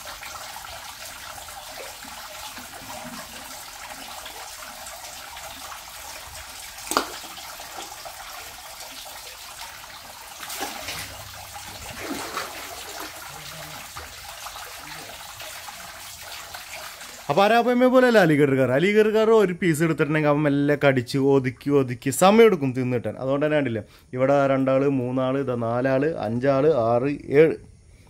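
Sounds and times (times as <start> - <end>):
running water in fish tank: 0.0 - 18.4
fish splashing at surface: 6.8 - 8.5, 10.0 - 15.2.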